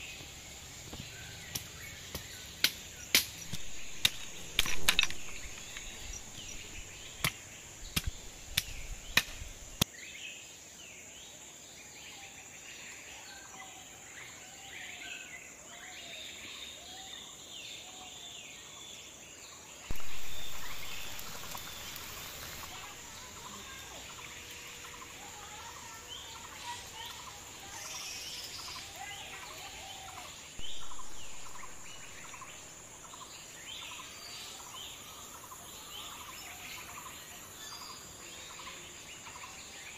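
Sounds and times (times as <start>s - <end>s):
birds chirping and singing: 0.0s - 9.8s, 19.9s - 39.9s
blade chopping wood: 1.4s - 5.9s
loud hiss: 19.9s - 28.6s.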